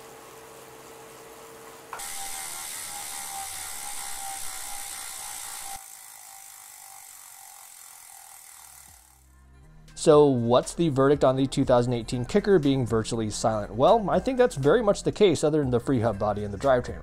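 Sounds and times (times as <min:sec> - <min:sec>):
bike trainer whining: 0:01.6 - 0:09.3
freehub ratcheting: 0:02.1 - 0:09.3.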